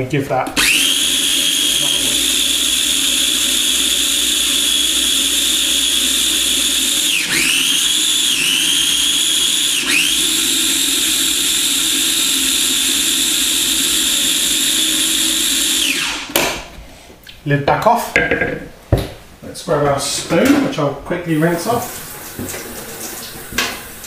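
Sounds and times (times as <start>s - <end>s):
food processor motor whining: 0.6s - 16.4s.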